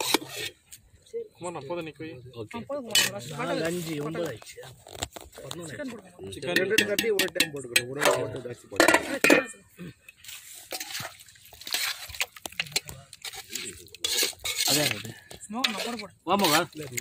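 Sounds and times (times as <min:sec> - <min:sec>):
metal spoon scraping steel pan: 0:00.0 - 0:00.6, 0:02.9 - 0:04.1, 0:10.6 - 0:17.0
dishes clattering: 0:06.4 - 0:09.6.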